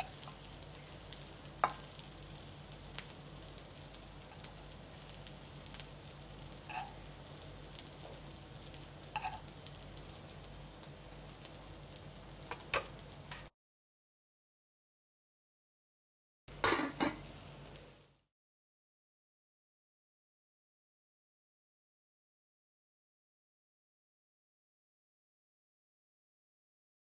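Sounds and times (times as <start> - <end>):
faint sizzle of frying oil: 0.0 - 13.6, 16.5 - 18.3
spoon scraping a metal pan: 6.7 - 7.0, 9.2 - 9.4.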